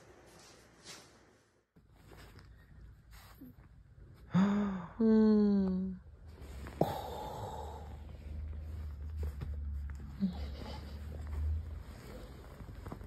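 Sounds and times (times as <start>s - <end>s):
soft rustle: 0.0s - 4.2s, 6.2s - 6.8s, 7.8s - 13.0s
person making low drawn-out sounds: 4.3s - 8.2s.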